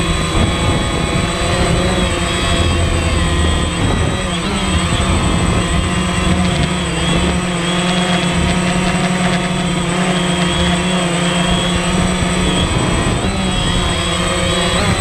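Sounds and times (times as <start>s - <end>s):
drone propellers whirring: 0.0s - 15.0s.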